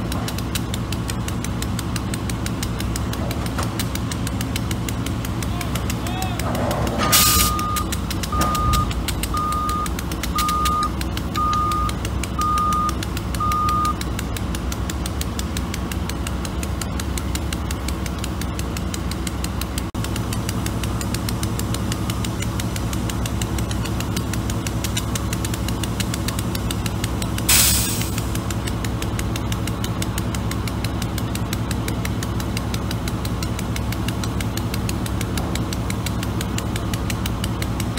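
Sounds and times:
diesel engine running: 0.0 - 37.9
reverse backup alarm beeping: 7.2 - 14.0.

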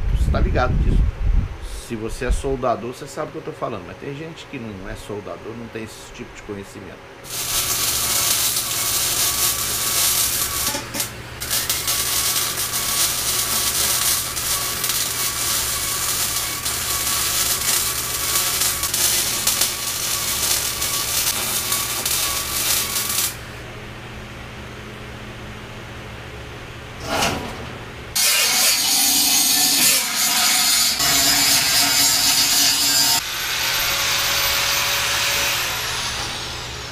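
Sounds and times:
welding arc crackling: 7.2 - 23.6, 28.2 - 35.8.

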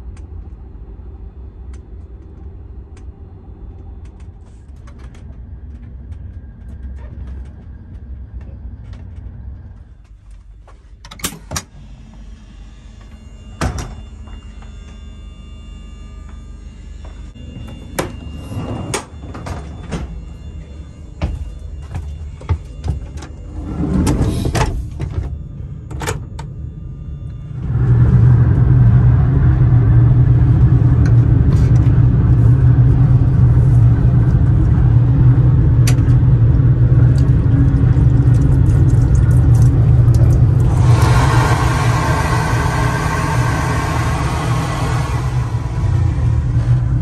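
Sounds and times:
mechanical rumble with deep hum: 0.0 - 47.0.

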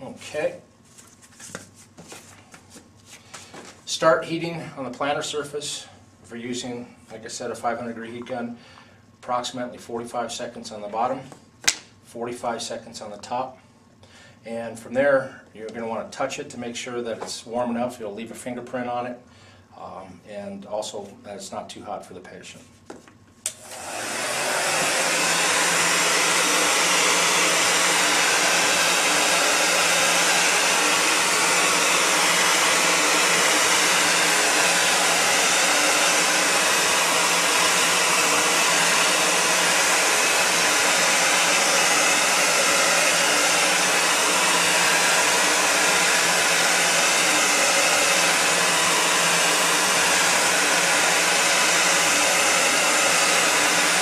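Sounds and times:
heat gun switch click: 23.4 - 23.6
heat gun blower hissing: 23.5 - 54.0.

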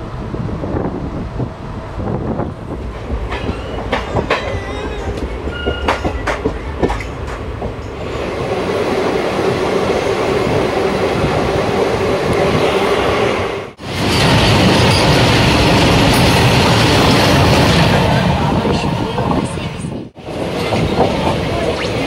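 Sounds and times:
train rushing: 0.0 - 22.0
train wheels clattering over rail joints: 2.9 - 8.0.

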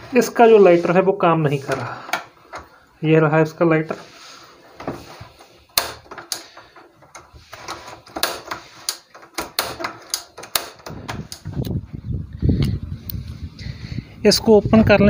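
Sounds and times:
gas stove igniter clicking: 5.8 - 6.5, 8.2 - 11.7.

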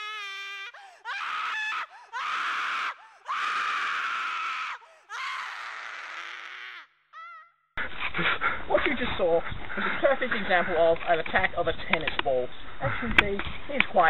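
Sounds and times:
young man screaming: 0.0 - 7.5
short breaths: 0.7 - 1.1, 3.0 - 3.3, 4.8 - 5.1.

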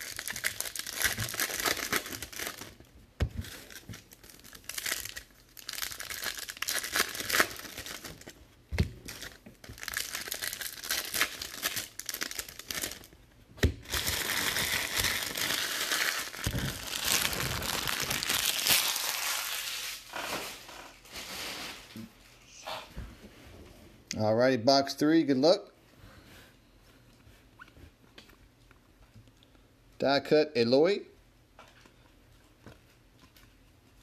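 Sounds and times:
foil wrappers tearing and crinkling: 0.0 - 8.4, 9.0 - 13.1, 13.8 - 21.9.

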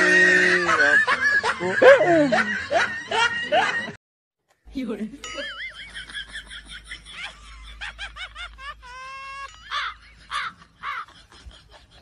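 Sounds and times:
high-pitched voice laughing: 0.2 - 3.9, 6.8 - 12.0.

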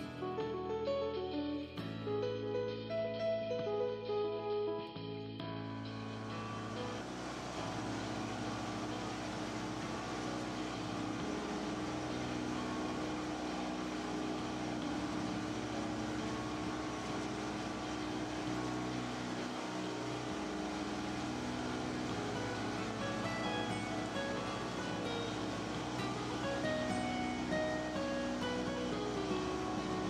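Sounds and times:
boat engine humming: 5.8 - 30.0
rushing water noise: 6.0 - 30.0.

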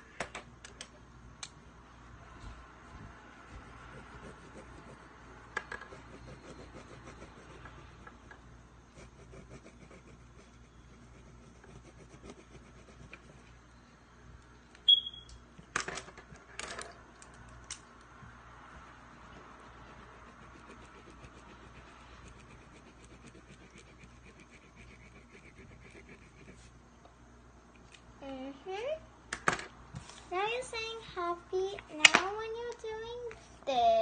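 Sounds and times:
pen scratching on paper: 2.9 - 8.1, 8.9 - 13.6, 19.1 - 26.7
short high squeak: 14.9 - 15.4.

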